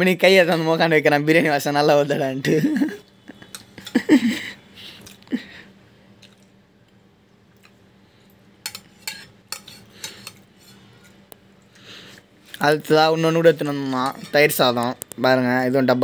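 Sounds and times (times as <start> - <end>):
metal spoon scraping steel plate: 3.4 - 3.9, 8.6 - 11.2, 13.4 - 14.8.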